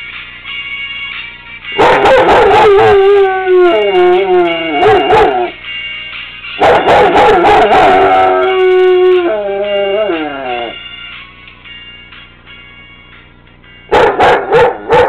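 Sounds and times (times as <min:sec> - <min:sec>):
dog howling: 0:01.8 - 0:05.6, 0:06.6 - 0:10.8.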